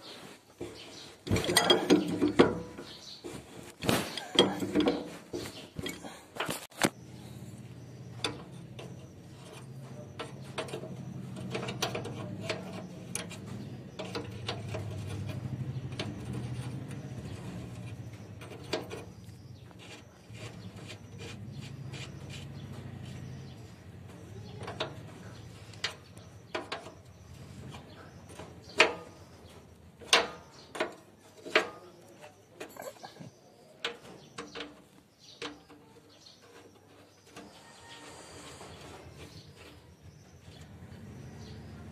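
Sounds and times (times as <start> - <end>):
metal tools clinking: 1.2 - 3.0, 30.0 - 34.8.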